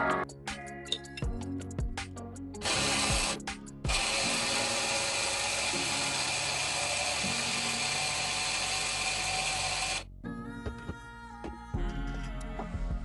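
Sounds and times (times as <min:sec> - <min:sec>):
stick blender grinding oats: 0:02.6 - 0:10.0.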